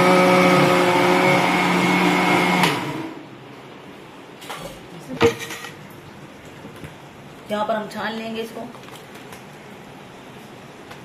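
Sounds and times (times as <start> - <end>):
blender motor running: 0.0 - 3.2.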